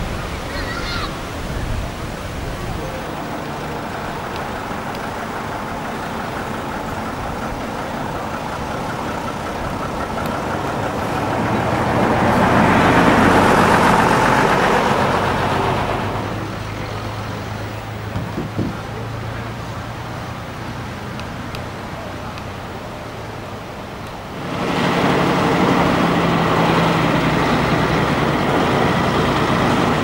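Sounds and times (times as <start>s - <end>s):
diesel coach driving past: 0.0s - 30.0s
short knocks: 18.0s - 19.0s.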